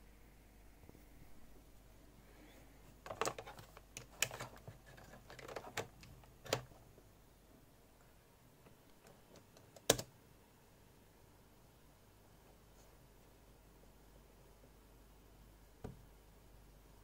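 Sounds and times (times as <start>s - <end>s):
cable clicking and clattering: 3.0s - 6.8s.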